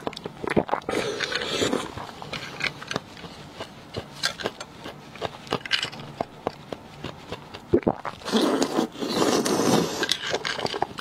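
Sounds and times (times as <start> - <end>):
mouth sounds of eating: 2.9 - 10.0.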